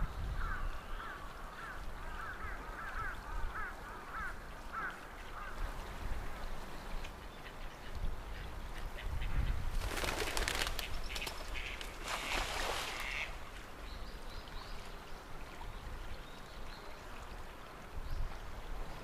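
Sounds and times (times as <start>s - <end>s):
pigeon wings flapping: 9.8s - 11.5s.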